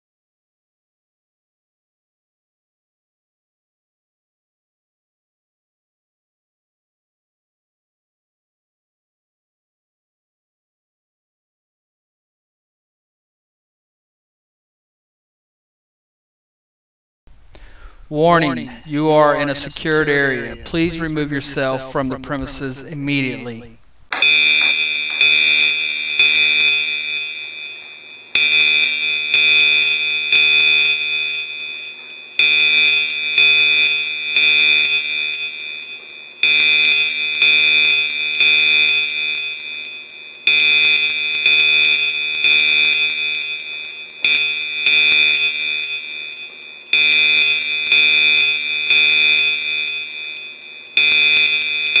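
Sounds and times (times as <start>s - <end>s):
shrill electronic alarm tone: 18.4s - 52.0s.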